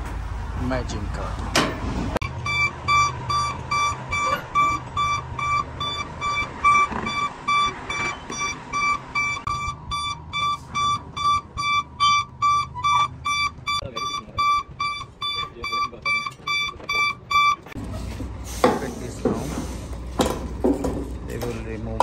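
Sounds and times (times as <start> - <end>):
low engine hum: 0.0 - 22.0
electronic warning beeps: 2.2 - 17.8.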